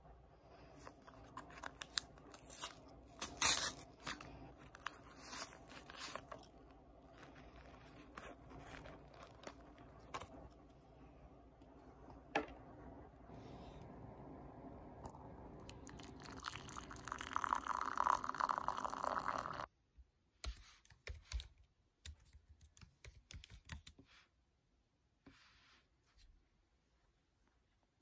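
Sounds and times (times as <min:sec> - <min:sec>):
water pouring into a mug: 0:15.0 - 0:19.7
typing on laptop keyboard: 0:20.4 - 0:24.0.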